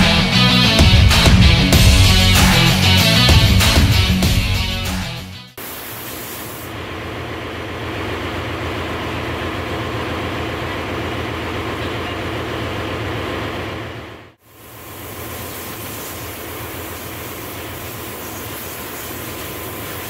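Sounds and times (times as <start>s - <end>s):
engine room machinery running: 6.7s - 20.0s.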